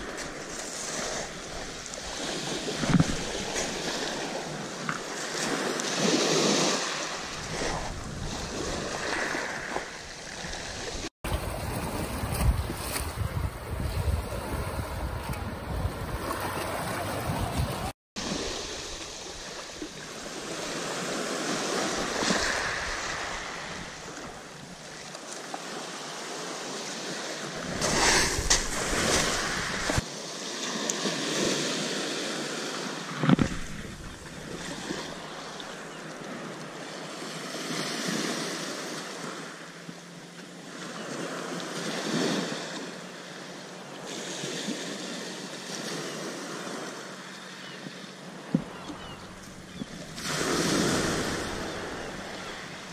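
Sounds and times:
wind buffeting microphone: 0:10.8 - 0:17.9
waves washing on shingle: 0:27.6 - 0:30.0, 0:48.5 - 0:52.9.

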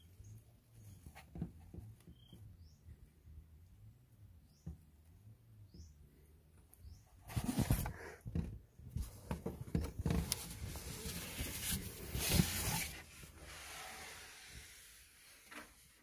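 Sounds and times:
rustling and scuffing: 0:09.0 - 0:13.3.

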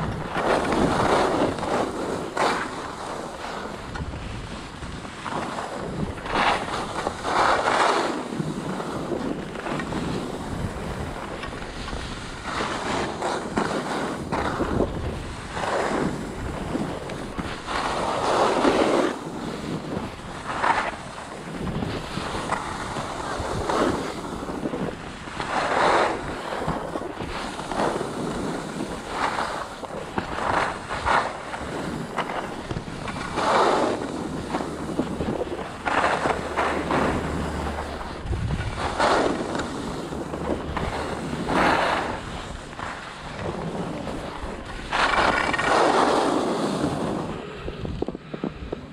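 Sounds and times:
skis scraping through snow: 0:00.0 - 0:48.9
wind noise on microphone: 0:00.0 - 0:48.9.

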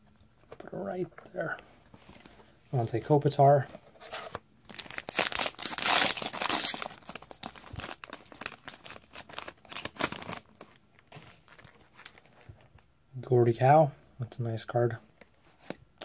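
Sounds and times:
wrapper tearing and crinkling: 0:04.7 - 0:10.8.

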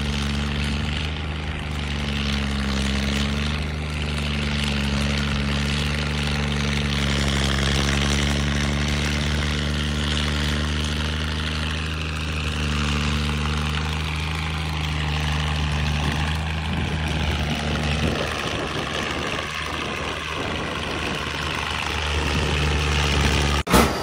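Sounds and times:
tractor engine running: 0:00.0 - 0:24.0.

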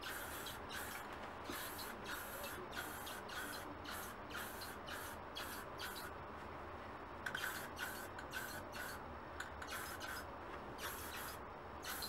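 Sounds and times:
spray paint can hissing: 0:00.0 - 0:06.0, 0:07.3 - 0:09.0, 0:09.6 - 0:10.2, 0:10.8 - 0:12.0.

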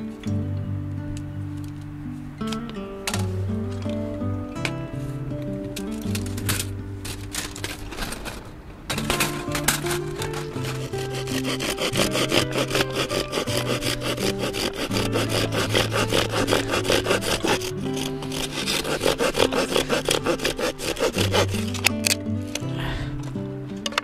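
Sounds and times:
background music: 0:00.0 - 0:08.1, 0:08.9 - 0:24.0
knife shaving wood: 0:08.9 - 0:22.8.

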